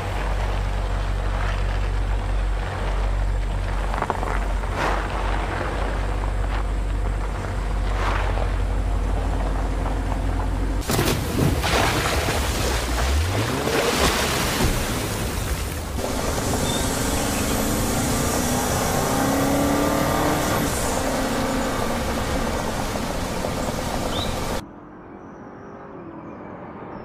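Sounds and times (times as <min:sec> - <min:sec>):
tyre noise on dirt track: 0:00.0 - 0:24.6
water splashing: 0:10.8 - 0:24.6
car engine revving: 0:16.0 - 0:24.6.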